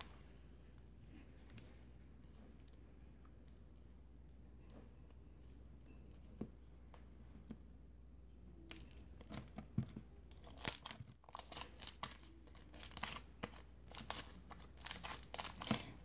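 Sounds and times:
slime crackling and popping: 10.3s - 16.0s.

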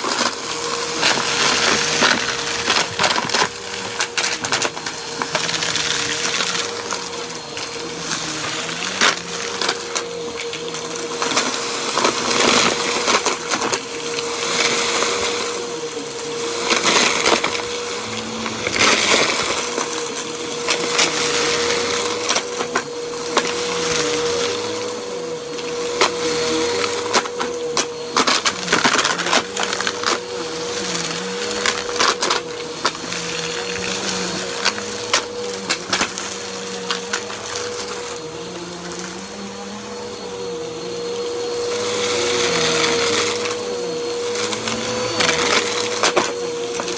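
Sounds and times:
debris crackling in vacuum: 0.0s - 24.6s
upright vacuum cleaner on carpet: 0.0s - 46.9s.

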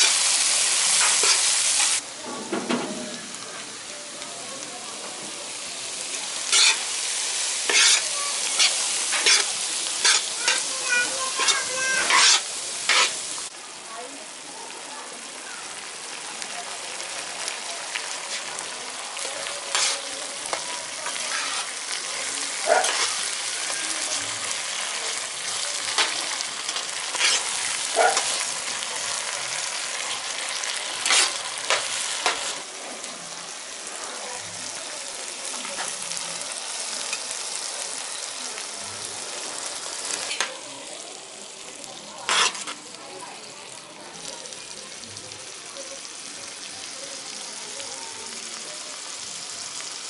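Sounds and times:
gravy sizzling in a pan: 0.0s - 50.0s
metal ladle scraping a pan: 6.5s - 13.3s, 19.7s - 20.1s, 21.0s - 21.8s, 22.8s - 24.3s, 25.9s - 28.5s, 31.0s - 32.6s, 42.3s - 42.8s.

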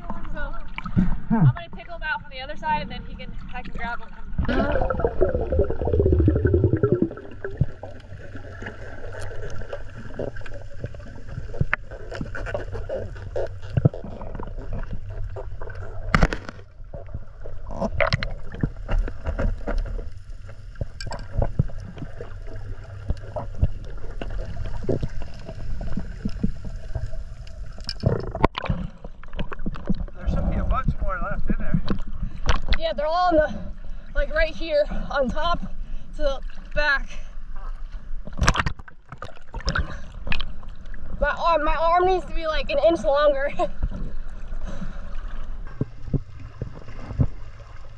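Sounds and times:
muffled underwater rumble: 0.0s - 36.0s, 39.6s - 47.9s
underwater clicks and knocks: 9.1s - 30.2s, 31.7s - 32.8s, 38.2s - 41.0s, 45.7s - 47.6s.

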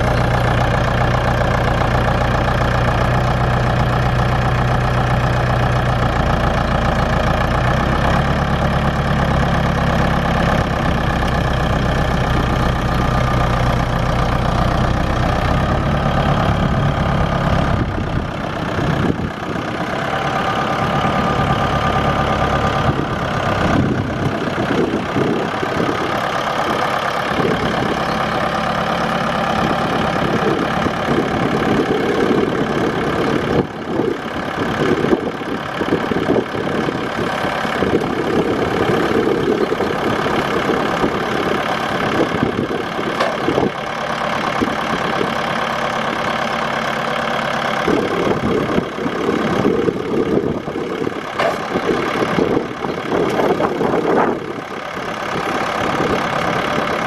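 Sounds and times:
tractor diesel engine idling: 0.0s - 57.0s.

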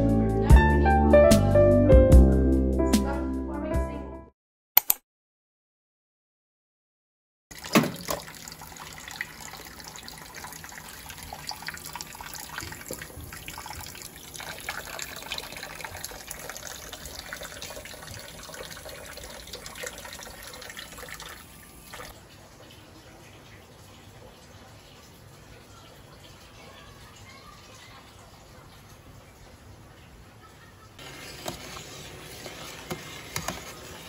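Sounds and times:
tap water splashing into sink: 7.5s - 25.1s, 31.3s - 34.0s.

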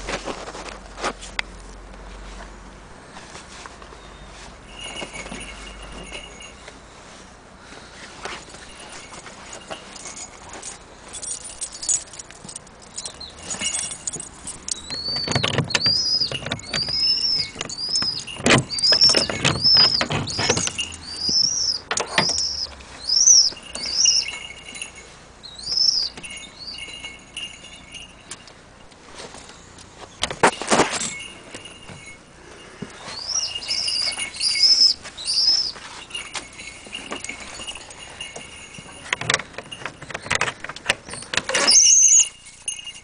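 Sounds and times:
padlock and bolt rattling: 9.1s - 24.3s, 36.3s - 43.0s.

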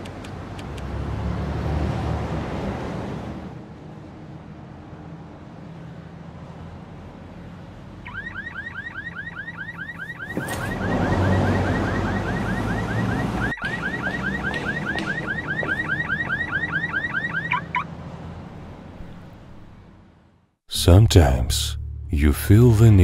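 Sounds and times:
car alarm rapid chirping: 8.1s - 17.9s.

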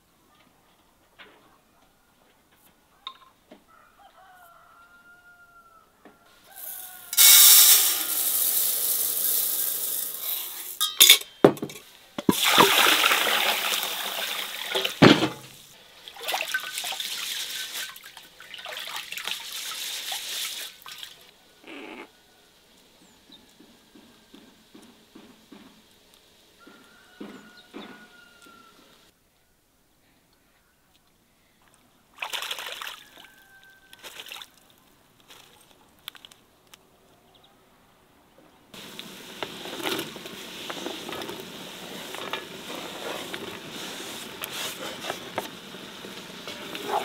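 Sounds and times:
water pouring into rice: 6.6s - 10.8s, 12.3s - 15.0s.

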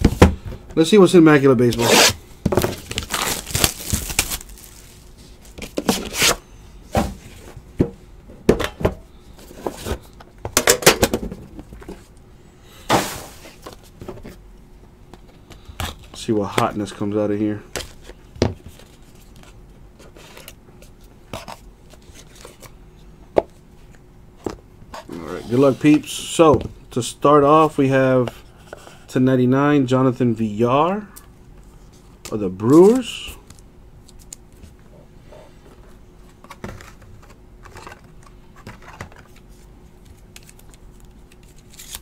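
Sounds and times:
cardboard and cards rubbing: 1.7s - 6.4s, 24.9s - 26.1s.

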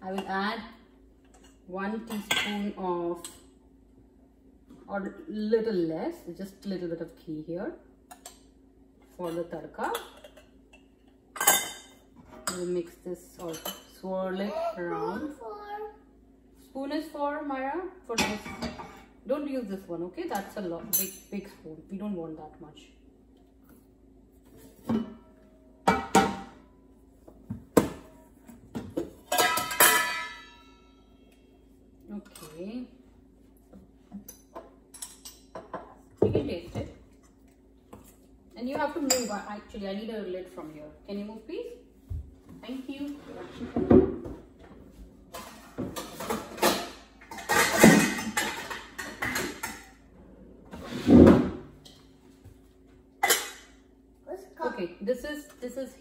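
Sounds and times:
cookware knocking and rattling: 28.7s - 30.8s, 45.3s - 49.9s
metal containers clattering: 29.0s - 30.8s, 45.3s - 49.8s.

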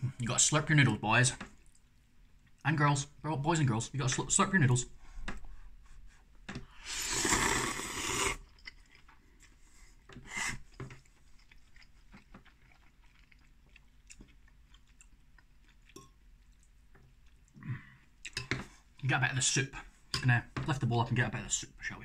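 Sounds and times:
quiet chewing: 1.5s - 2.6s, 8.3s - 19.0s
person slurping noodles: 6.8s - 8.5s, 10.2s - 10.7s.

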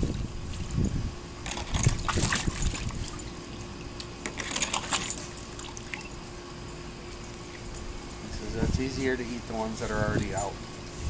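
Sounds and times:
dogs splashing in water: 1.4s - 3.6s, 4.3s - 6.1s.

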